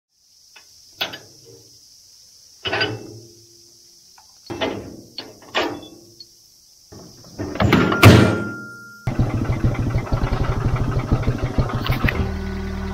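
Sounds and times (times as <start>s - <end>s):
metal rattle: 7.0s - 9.2s.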